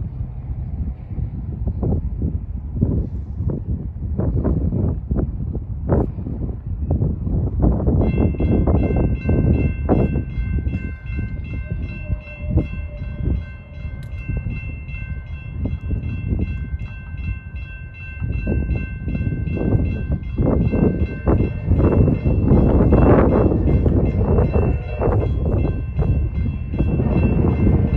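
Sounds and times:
wind buffeting microphone: 0:00.0 - 0:27.9
crossing warning bell ringing: 0:07.9 - 0:27.9.

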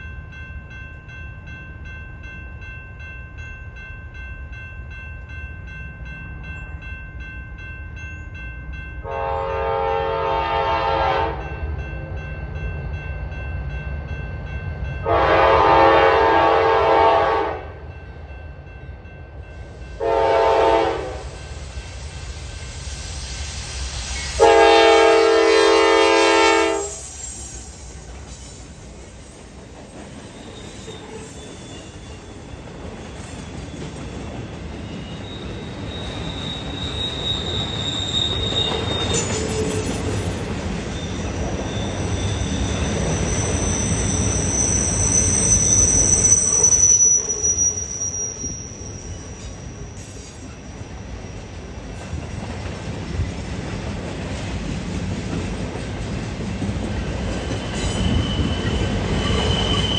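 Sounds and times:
train wheels rumbling on track: 0:00.0 - 0:59.9
wheel flange squeals: 0:26.8 - 0:40.2, 0:40.8 - 0:51.4, 0:57.0 - 0:59.9.

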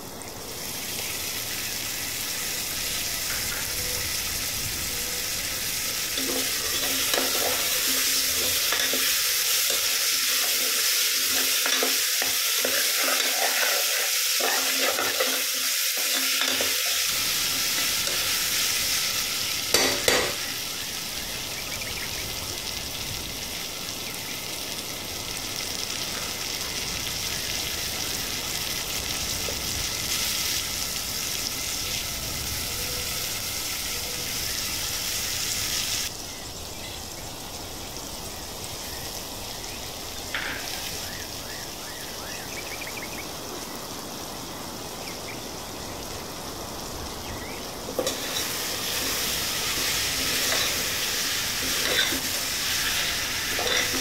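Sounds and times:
vegetables sizzling in oil: 0:00.0 - 0:54.0
spoon knocking on pot: 0:19.7 - 0:20.4.

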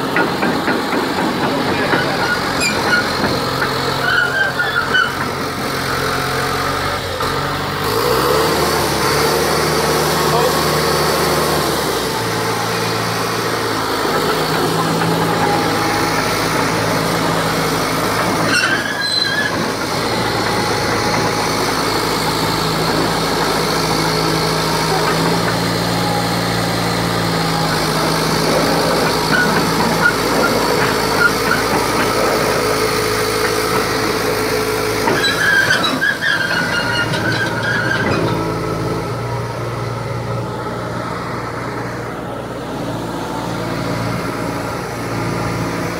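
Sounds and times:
steel tracks squealing: 0:00.0 - 0:06.5, 0:11.9 - 0:38.8
bulldozer diesel engine running: 0:00.0 - 0:45.9.

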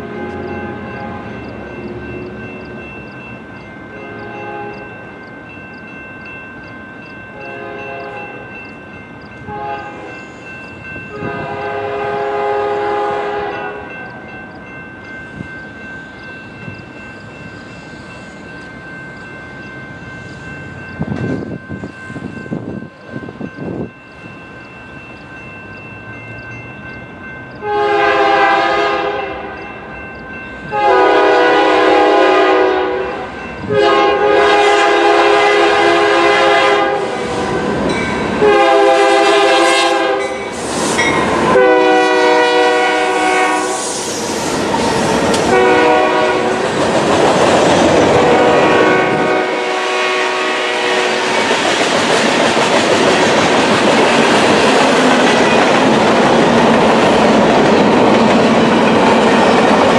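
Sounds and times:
train air horn blasts: 0:00.0 - 0:01.4, 0:04.0 - 0:05.0, 0:07.4 - 0:08.5, 0:09.4 - 0:10.4, 0:11.1 - 0:14.2, 0:27.6 - 0:29.6, 0:30.7 - 0:37.8, 0:38.4 - 0:44.2, 0:45.5 - 0:46.7, 0:48.1 - 0:51.4
crossing bell dinging: 0:00.0 - 0:43.8.

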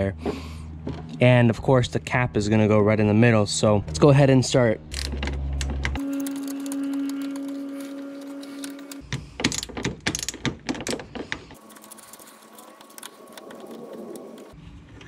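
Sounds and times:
socket ratchet clicking: 0:09.0 - 0:11.5.

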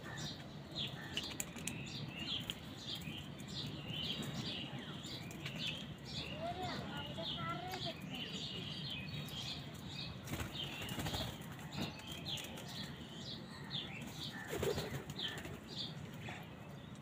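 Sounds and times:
small birds chirping: 0:00.0 - 0:17.0
birds flapping wings: 0:10.2 - 0:12.8, 0:14.4 - 0:15.7.

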